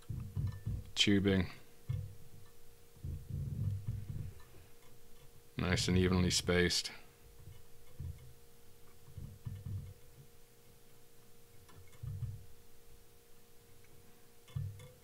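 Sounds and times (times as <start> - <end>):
soft thumps and light clicks: 0.0 - 5.4, 7.3 - 10.4, 11.5 - 12.7, 13.7 - 15.0
faint steady hum: 0.0 - 15.0.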